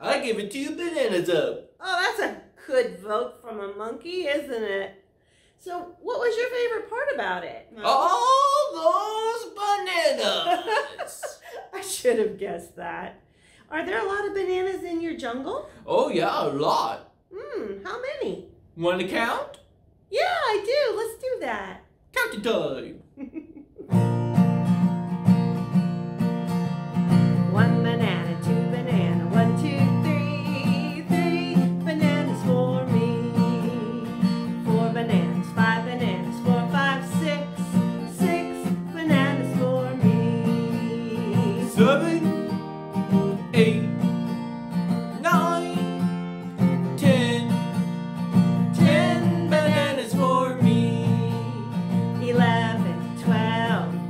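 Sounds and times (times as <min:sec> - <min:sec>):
acoustic guitar strumming: 0:23.9 - 0:54.0
woman singing: 0:27.4 - 0:42.5, 0:45.3 - 0:45.9, 0:48.7 - 0:54.0.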